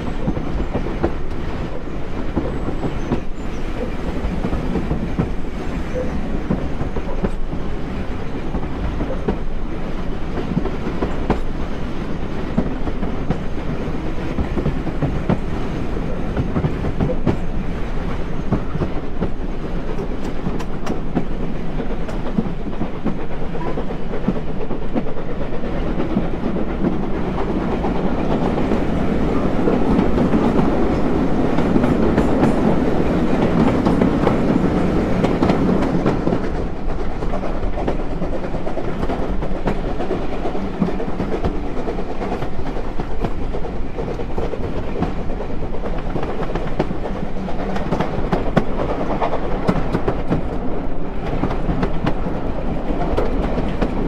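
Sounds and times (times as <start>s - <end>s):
train rumble: 0.0s - 54.0s
wheels clacking over rail joints: 0.0s - 54.0s.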